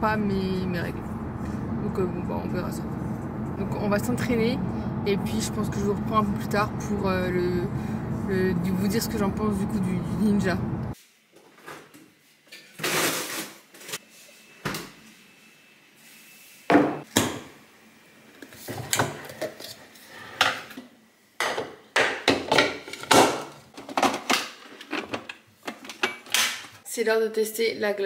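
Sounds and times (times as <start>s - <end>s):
plastic containers knocking and scraping: 21.4s - 26.8s.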